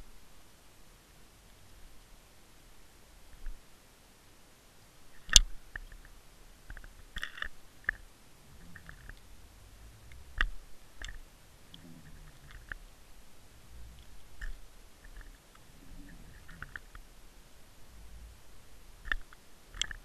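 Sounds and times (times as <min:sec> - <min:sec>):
faint low rumble: 0:00.0 - 0:20.0
sharp clicks and knocks underwater: 0:06.7 - 0:08.0, 0:10.1 - 0:12.8, 0:14.0 - 0:17.0, 0:19.0 - 0:20.0.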